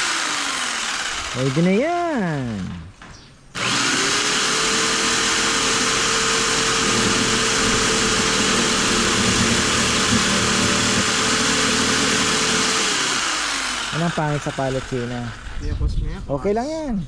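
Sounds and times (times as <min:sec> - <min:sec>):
electric jigsaw cutting wood: 0:00.0 - 0:02.9, 0:03.5 - 0:15.7.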